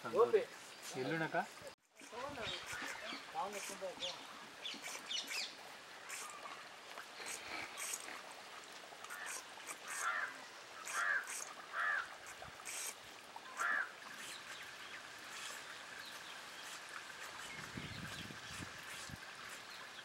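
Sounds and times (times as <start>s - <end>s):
small birds chirping: 0.1s - 8.2s, 9.1s - 20.0s
large bird calls: 9.1s - 12.1s, 13.4s - 14.6s.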